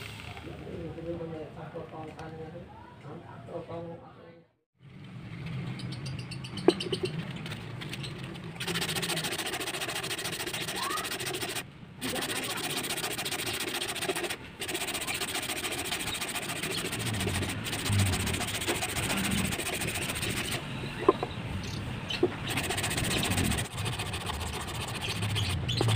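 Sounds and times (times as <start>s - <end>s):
sandpaper rubbing wood: 8.6s - 20.6s, 22.3s - 25.9s.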